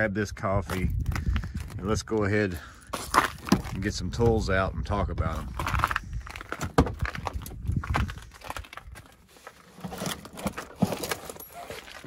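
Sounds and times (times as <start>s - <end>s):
tool bags rustling and knocking: 2.9s - 4.4s, 5.3s - 12.0s.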